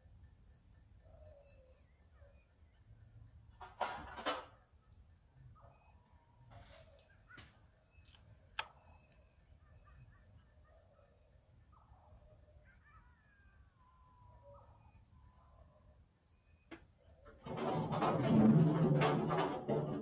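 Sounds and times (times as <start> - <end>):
sharp click: 8.1 - 8.8.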